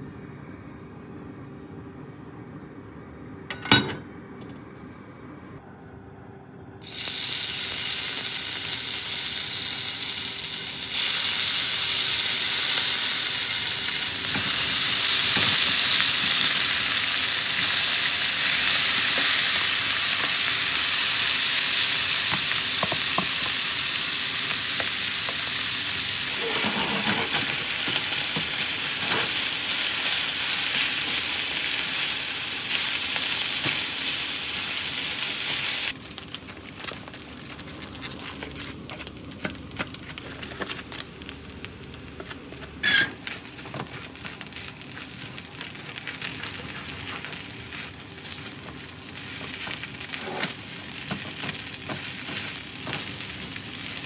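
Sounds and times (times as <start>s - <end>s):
food sizzling in hot oil: 6.8s - 37.2s, 42.6s - 54.0s
spatula scraping a pan: 26.3s - 27.4s.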